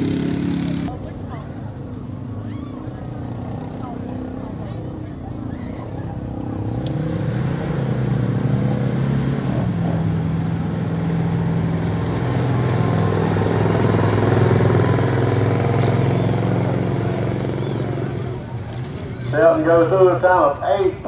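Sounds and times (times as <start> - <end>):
engine revving hard: 0.0 - 0.9, 5.8 - 19.9.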